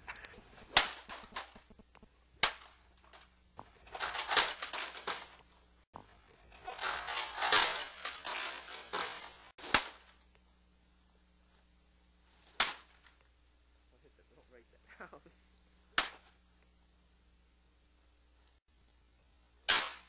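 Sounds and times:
rustling scraping noise: 6.4s - 10.2s.

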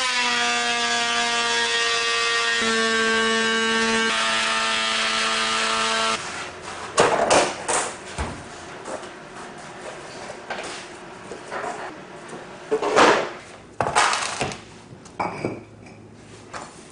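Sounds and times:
power tool motor whine: 0.0s - 6.2s.

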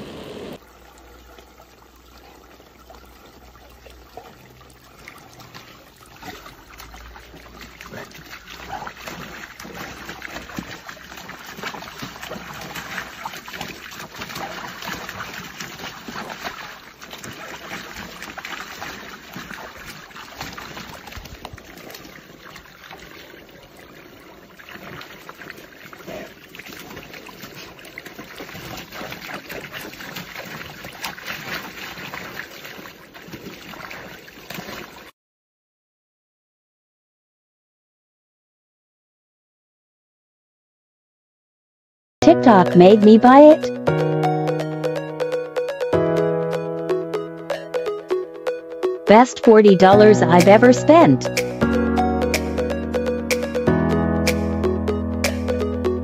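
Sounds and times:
sprinkler water jets spraying: 0.0s - 0.6s
dog splashing in water: 1.2s - 35.1s.

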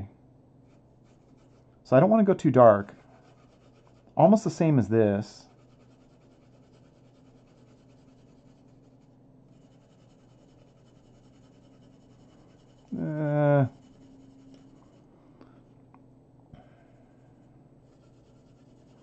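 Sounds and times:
pencil scratching on paper: 0.7s - 1.7s, 3.0s - 4.2s, 5.4s - 15.1s, 17.8s - 19.0s
man humming briefly: 12.9s - 13.7s.

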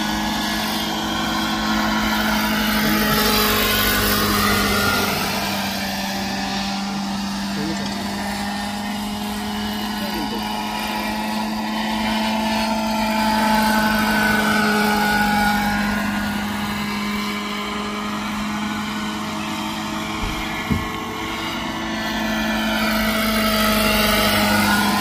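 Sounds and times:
model helicopter rotor and motor: 0.0s - 25.0s
brief knock: 20.2s - 21.0s.

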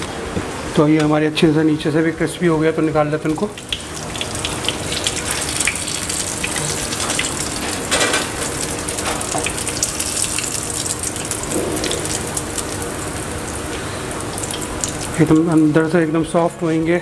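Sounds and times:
food sizzling in hot oil: 3.3s - 15.7s.

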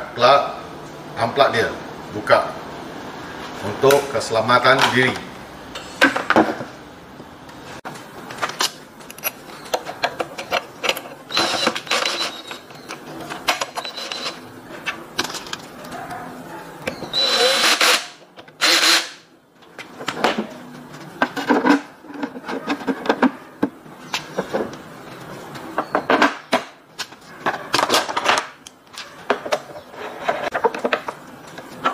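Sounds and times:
power screwdriver whirring: 11.3s - 12.6s, 17.1s - 19.2s.

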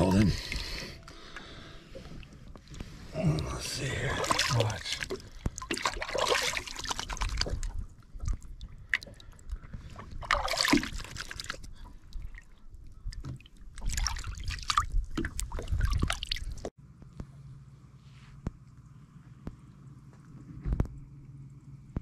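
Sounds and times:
water splashing and sloshing: 0.0s - 16.7s.

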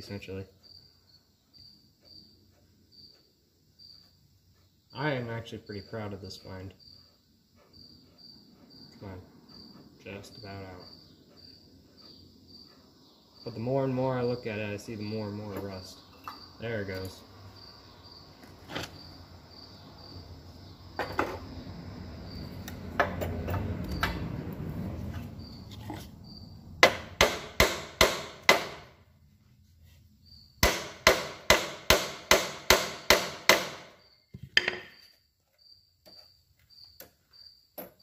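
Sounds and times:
crickets chirping: 0.0s - 38.0s
hammer striking metal: 26.8s - 28.9s, 30.6s - 33.9s.

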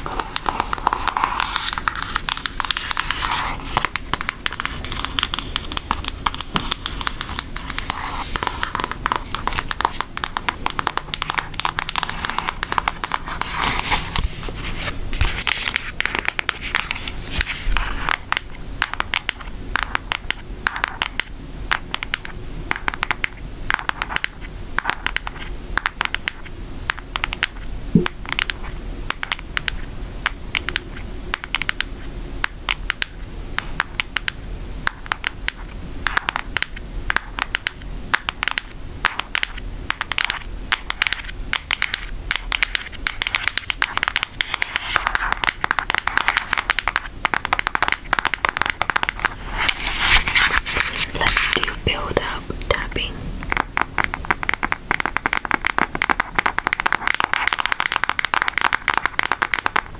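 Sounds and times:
nails tapping on cardboard box: 8.7s - 13.2s, 18.1s - 49.3s, 53.5s - 59.9s.

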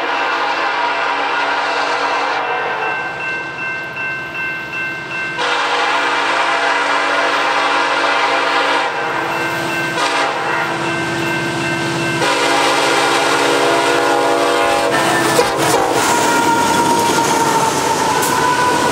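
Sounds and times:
train horn chord: 0.0s - 3.1s, 5.4s - 9.2s, 9.9s - 10.9s, 12.2s - 16.3s
diesel engines: 5.4s - 18.9s
freight cars rumbling: 8.2s - 18.9s.

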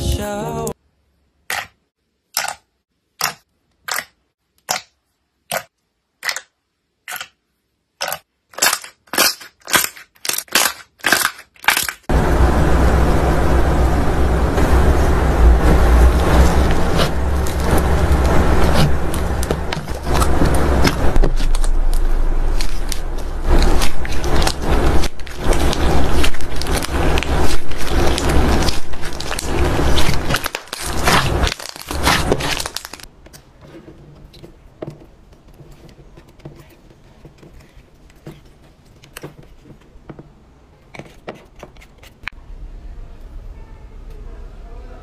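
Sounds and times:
slime squelching and crackling: 1.5s - 7.4s, 8.0s - 12.1s, 14.4s - 40.0s
soft slime crackles: 15.7s - 33.6s.

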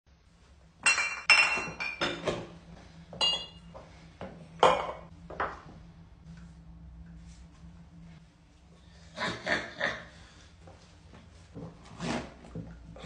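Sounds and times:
glass bottles clinking: 0.8s - 2.4s, 3.2s - 3.7s.

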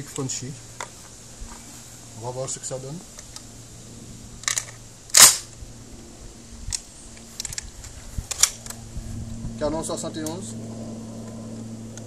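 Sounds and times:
shotgun loading clicks: 4.4s - 5.6s, 6.7s - 8.8s.

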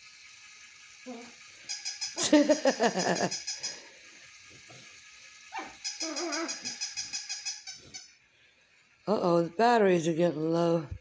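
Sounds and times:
toy rapid clicking: 0.0s - 10.8s
short wavering squeals: 1.0s - 2.4s, 3.2s - 4.1s, 5.1s - 9.1s.

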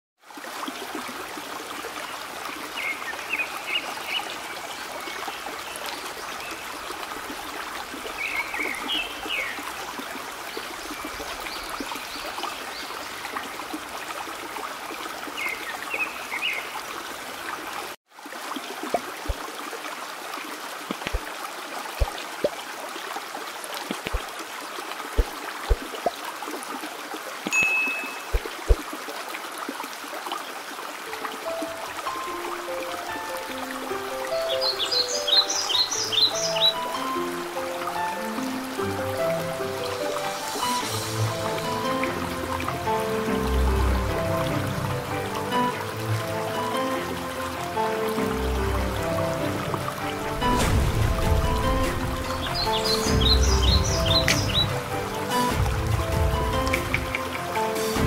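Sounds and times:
stream trickling: 0.2s - 58.0s
bird chirps: 34.4s - 37.0s.

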